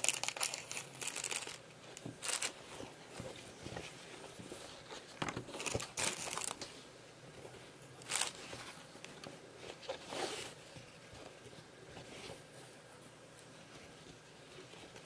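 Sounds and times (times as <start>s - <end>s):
fabric bag rustling: 0.0s - 2.9s, 5.5s - 6.6s, 8.0s - 8.8s.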